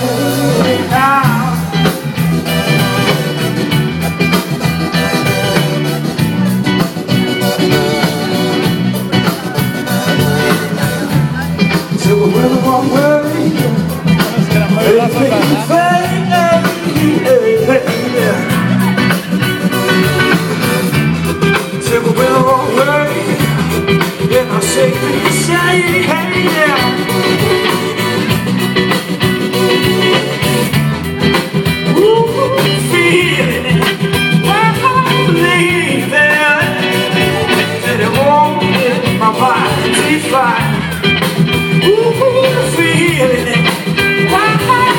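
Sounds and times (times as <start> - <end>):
person singing: 0.0 - 30.6, 31.2 - 44.9
live band playing: 0.0 - 44.9.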